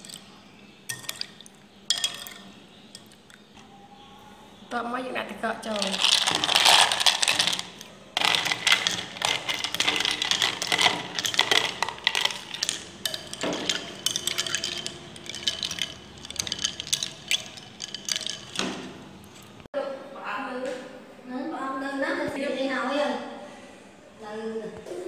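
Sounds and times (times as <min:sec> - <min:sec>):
ice cubes clinking in bowl: 0:00.9 - 0:03.3, 0:05.7 - 0:19.6
metal spoon scooping ice: 0:05.7 - 0:19.5.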